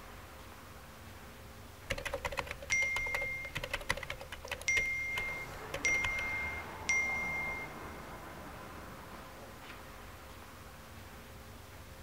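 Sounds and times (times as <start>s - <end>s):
touchscreen keyboard tapping: 1.9s - 7.7s
chat message tone chiming: 2.6s - 3.9s, 4.6s - 8.1s.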